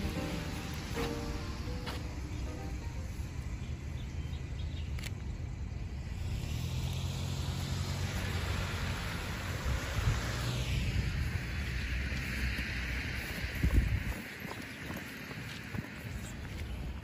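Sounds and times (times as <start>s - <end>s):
tyres hissing on wet road: 0.0s - 3.6s, 6.0s - 17.0s
steady low rumble: 0.0s - 17.0s.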